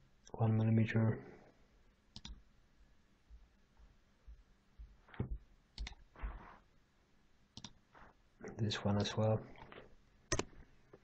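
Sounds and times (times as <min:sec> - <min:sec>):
faint room hiss: 0:00.0 - 0:11.0
computer mouse clicking: 0:02.1 - 0:02.4, 0:05.8 - 0:06.0, 0:07.6 - 0:07.8, 0:10.3 - 0:10.6.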